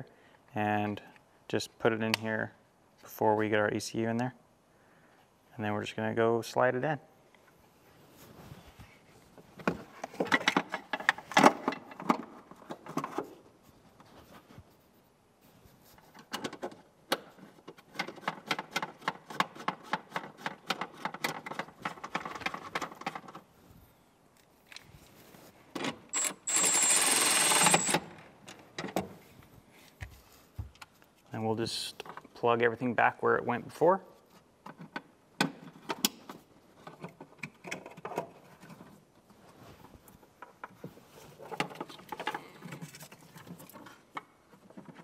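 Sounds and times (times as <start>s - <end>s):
ratchet wrench clicking: 26.2s - 28.0s.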